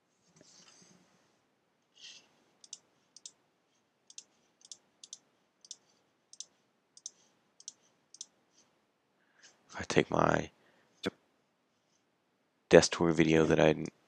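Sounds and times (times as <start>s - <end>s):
soft rustle: 0.0s - 4.6s, 11.7s - 12.1s.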